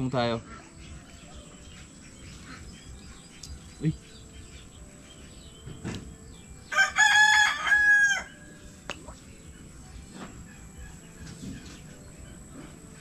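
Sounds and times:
rooster crowing: 0:06.7 - 0:08.4.

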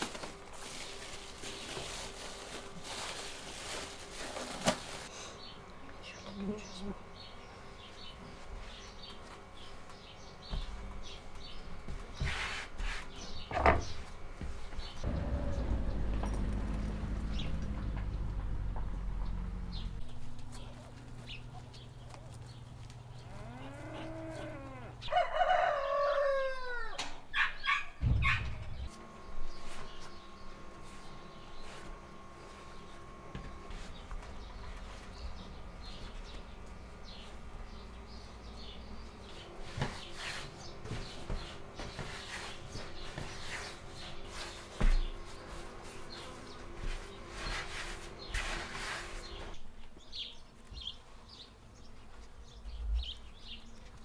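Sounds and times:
plastic bag crinkling: 0:00.0 - 0:05.1
rooster crowing: 0:23.3 - 0:27.1.

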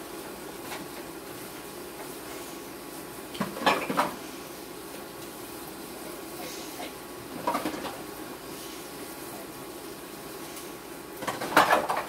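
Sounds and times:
low background hum: 0:00.0 - 0:12.0
dishes clattering in a sink: 0:03.4 - 0:04.2, 0:07.4 - 0:08.0, 0:11.2 - 0:12.0.

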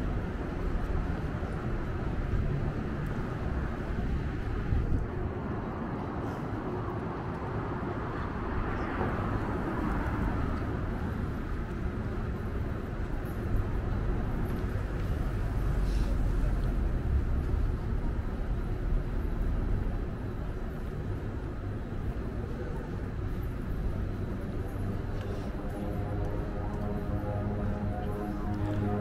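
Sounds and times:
vehicles passing: 0:00.0 - 0:29.0
deep engine rumble: 0:07.2 - 0:29.0.

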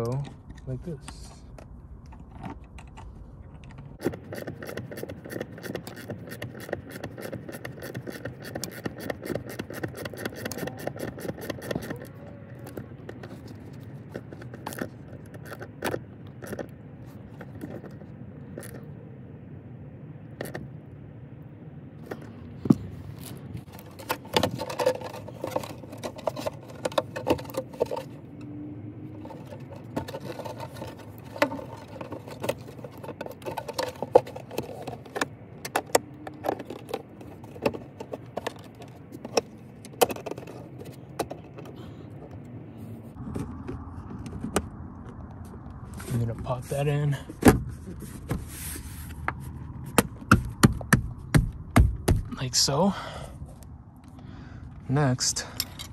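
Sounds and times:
low steady hum: 0:00.0 - 0:55.9
plastic trim clicks and scrapes: 0:04.0 - 0:18.8, 0:23.2 - 0:28.5, 0:29.2 - 0:42.5
seat belt hardware jangling: 0:04.0 - 0:18.8, 0:55.5 - 0:55.9.

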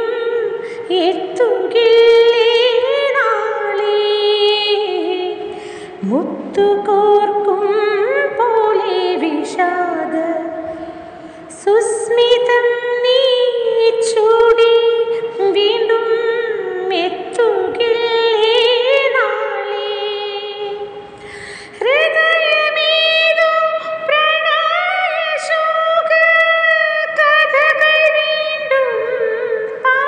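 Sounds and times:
woman singing with vibrato: 0:00.0 - 0:30.0
quick breath: 0:05.5 - 0:06.0, 0:21.2 - 0:21.8.

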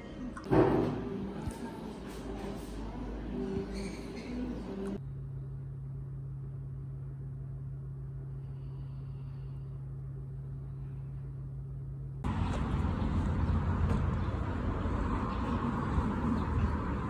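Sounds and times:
steady low hum: 0:00.0 - 0:17.0
road traffic noise: 0:12.2 - 0:17.0.

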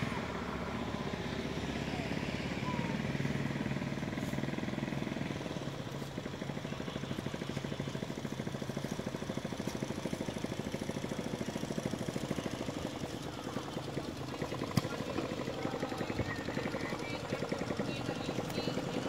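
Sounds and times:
small engine idling: 0:00.0 - 0:19.0.

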